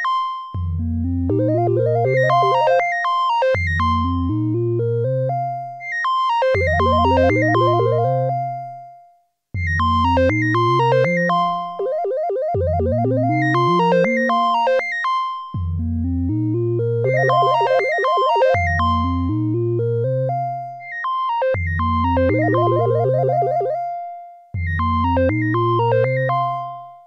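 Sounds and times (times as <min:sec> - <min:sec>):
plucked synthesizer notes: 0:00.6 - 0:03.0, 0:06.5 - 0:08.6, 0:09.6 - 0:15.0, 0:15.6 - 0:20.6, 0:21.6 - 0:26.8.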